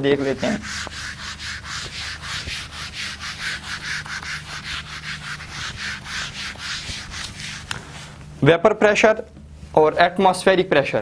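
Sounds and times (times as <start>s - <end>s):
eraser rubbing on whiteboard: 0.0s - 8.2s.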